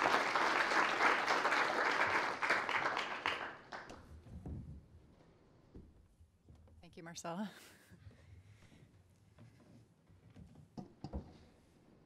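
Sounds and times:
audience applauding: 0.0s - 4.0s.

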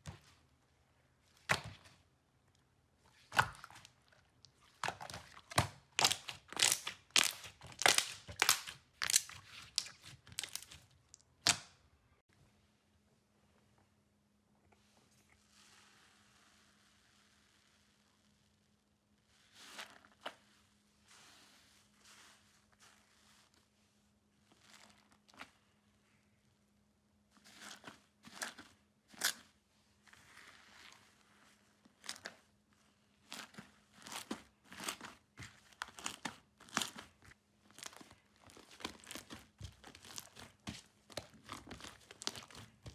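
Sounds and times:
slime popping and crackling: 3.3s - 11.7s, 33.4s - 42.9s.

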